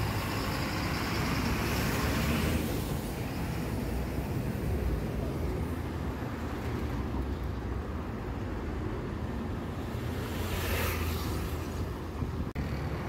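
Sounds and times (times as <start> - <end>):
bus engine rumble: 0.0 - 10.3, 11.0 - 13.0
street traffic: 0.0 - 13.0.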